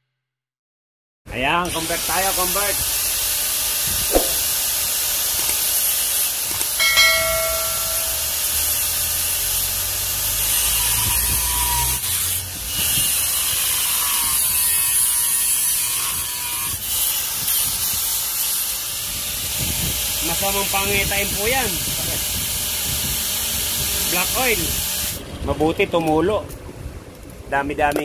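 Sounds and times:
angle grinder cutting metal pipe: 5.3s - 19.5s
ringing tones of disc on pipe: 6.8s - 8.5s.

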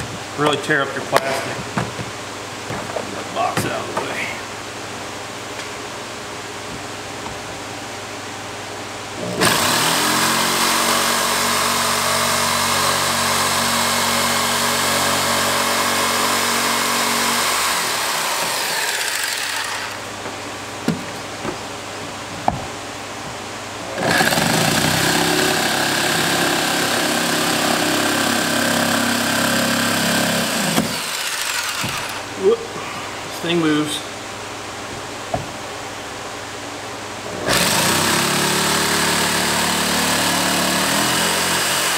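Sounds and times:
electric jigsaw running: 9.3s - 20.0s, 23.9s - 32.3s, 37.4s - 41.9s.

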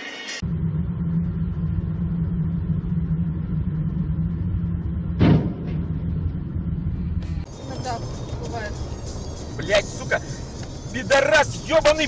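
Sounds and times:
vehicle engine and road noise: 0.4s - 12.0s
loud thump: 5.1s - 6.3s.

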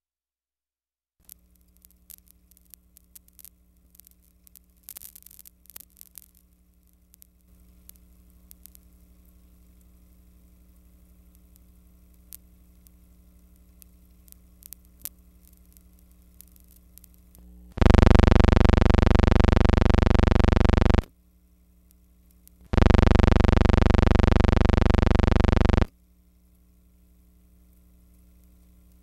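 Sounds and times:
faint hum: 6.3s - 29.0s
loud steady buzz: 17.4s - 21.1s, 22.7s - 25.9s.

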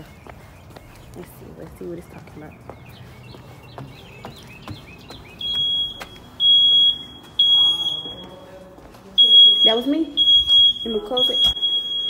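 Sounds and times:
footsteps: 0.0s - 11.7s
house alarm beeping: 5.3s - 8.6s, 9.2s - 12.0s.

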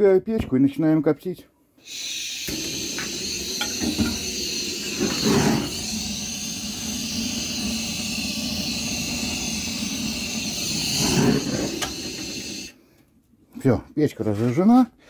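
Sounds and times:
wood stove rushing roar: 1.9s - 12.8s.

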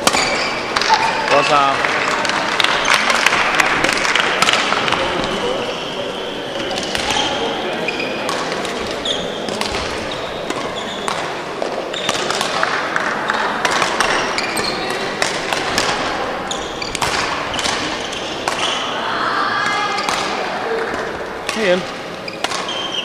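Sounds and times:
racket striking shuttlecock: 0.0s - 5.3s, 6.6s - 7.4s, 8.2s - 18.9s, 20.0s - 21.8s, 22.4s - 23.0s
sports hall background noise: 0.0s - 23.0s
shoe squeaks on court floor: 5.0s - 8.3s, 9.0s - 11.2s, 11.9s - 12.3s, 14.1s - 15.1s, 16.5s - 18.8s, 22.2s - 23.0s.

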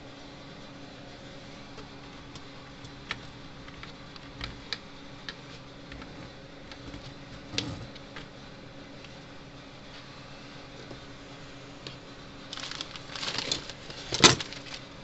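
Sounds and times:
faint steady hum: 0.0s - 15.0s
fingers clicking and tapping parts: 2.3s - 8.3s.

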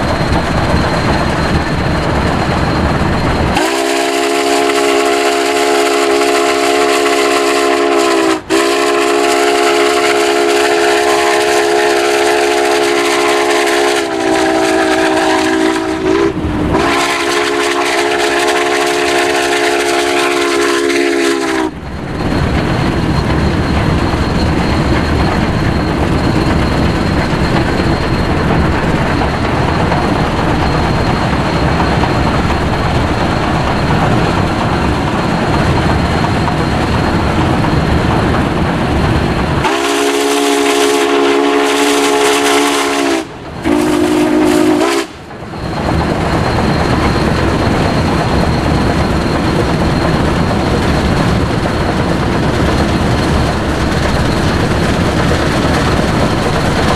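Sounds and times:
wind buffeting microphone: 0.0s - 4.0s, 9.5s - 40.9s, 45.2s - 56.9s
steam whistle chime: 3.5s - 21.8s, 39.6s - 45.2s.

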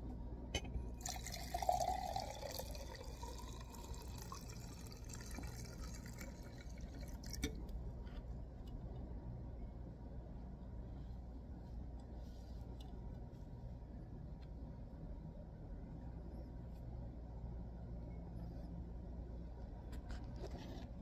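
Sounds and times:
gasoline pouring into glass cup: 0.9s - 7.6s.

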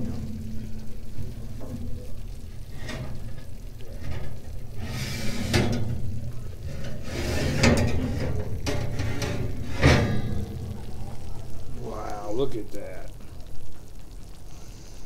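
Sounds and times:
oven rack and dish clinking: 0.0s - 11.8s
low steady rumble: 0.0s - 15.0s.

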